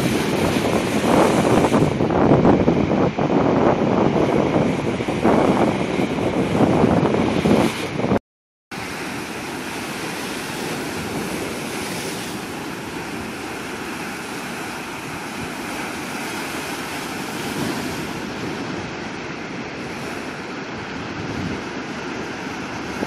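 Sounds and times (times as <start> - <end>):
waves breaking over rocks: 0.0 - 2.1, 8.8 - 23.0.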